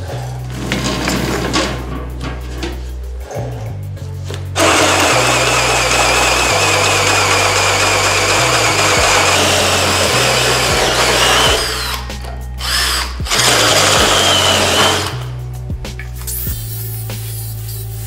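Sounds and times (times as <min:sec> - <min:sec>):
background music: 0:00.0 - 0:18.0
drill hole saw cutting metal: 0:04.6 - 0:15.2.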